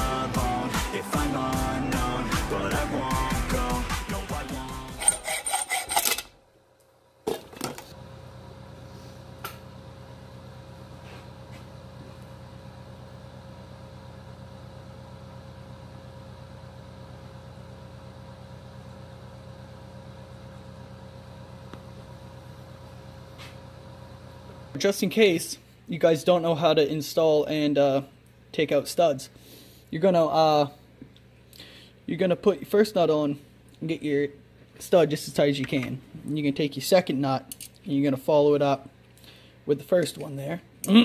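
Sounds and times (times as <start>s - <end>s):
pop music: 0.0s - 5.6s
steady low hum: 0.0s - 41.0s
hacksaw cutting steel: 4.9s - 6.4s.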